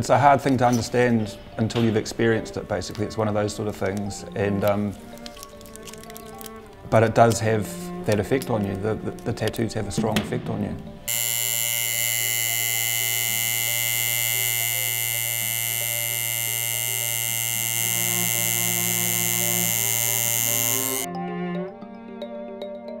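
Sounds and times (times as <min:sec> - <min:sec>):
tattoo machine buzzing: 0:11.1 - 0:21.1.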